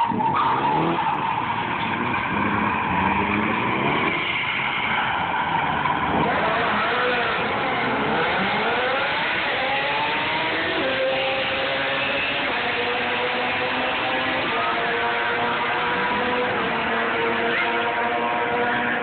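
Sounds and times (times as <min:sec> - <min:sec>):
car engine revving: 0:00.0 - 0:19.0.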